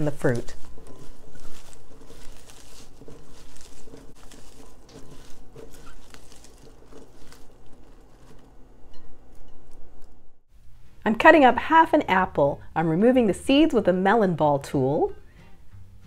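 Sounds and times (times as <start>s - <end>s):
crunching of crisp wet vegetables: 0.0s - 8.7s.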